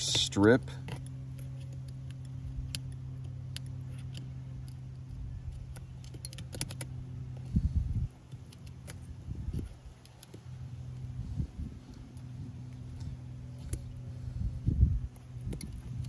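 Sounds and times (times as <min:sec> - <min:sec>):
steady low hum: 0:00.0 - 0:16.0
small tools clicking: 0:00.8 - 0:07.5, 0:08.1 - 0:11.1, 0:15.1 - 0:16.0.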